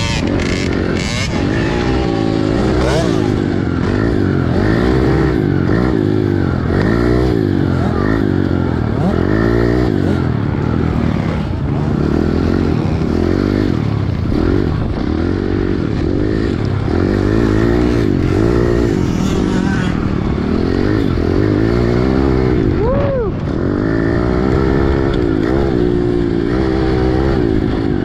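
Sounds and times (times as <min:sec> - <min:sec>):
motorbike engine revving: 0:00.0 - 0:28.0.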